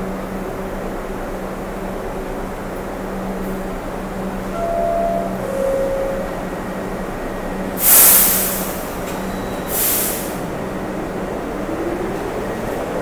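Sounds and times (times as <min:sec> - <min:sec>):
subway train humming: 0:00.0 - 0:13.0
two-note door chime: 0:04.5 - 0:06.6
air hisses: 0:07.8 - 0:08.8.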